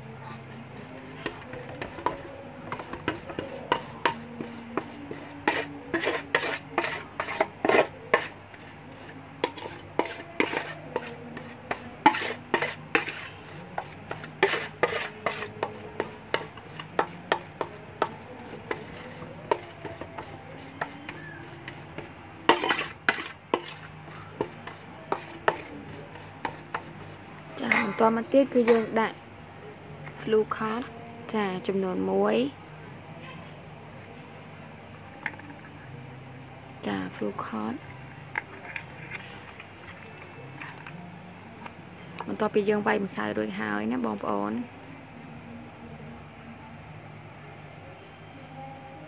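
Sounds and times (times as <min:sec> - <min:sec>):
metal spoon scraping steel basin: 0:00.2 - 0:29.0.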